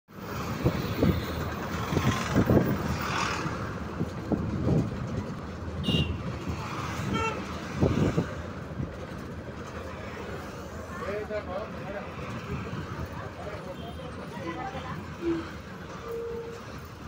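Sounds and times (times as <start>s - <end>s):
engine and road rumble: 0.1s - 17.0s
vehicle horn toot: 5.8s - 6.2s.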